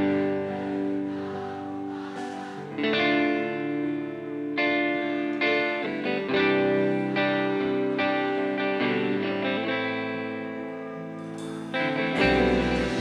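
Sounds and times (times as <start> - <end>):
electric guitar chords ringing: 0.0 - 13.0
rock band playing: 11.3 - 13.0.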